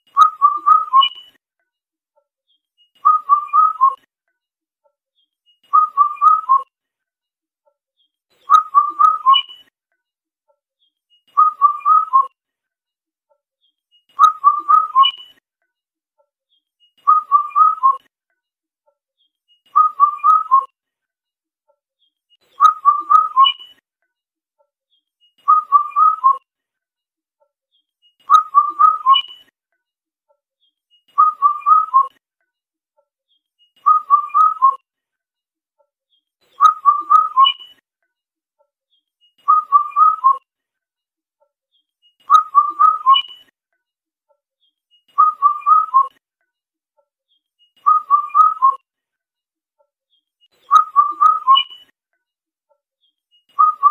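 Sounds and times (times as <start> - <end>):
cuckoo whistled call: 0.2 - 1.4, 3.0 - 4.0, 5.7 - 6.7, 8.5 - 9.7, 11.4 - 12.3, 14.2 - 15.4, 17.0 - 18.1, 22.6 - 23.8, 25.4 - 26.4, 28.3 - 29.5, 31.2 - 32.2, 33.8 - 34.8, 36.6 - 37.8, 39.4 - 40.4, 42.3 - 43.5, 45.1 - 46.2, 47.8 - 48.8, 50.6 - 51.9, 53.5 - 53.9.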